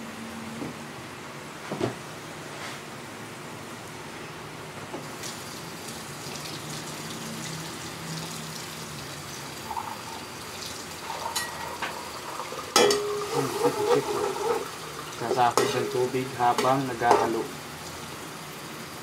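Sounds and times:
liquid simmering in a wok: 5.1 - 19.0
utensil clattering against wok: 12.7 - 14.7, 15.3 - 17.5.

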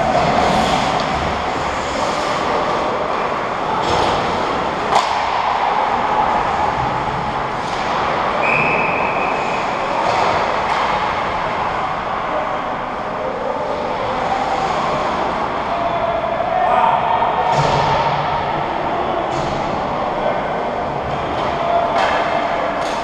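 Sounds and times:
skates scraping on ice: 0.0 - 3.4
echoing rink noise: 0.0 - 23.0
sharp crack: 4.9 - 5.8.

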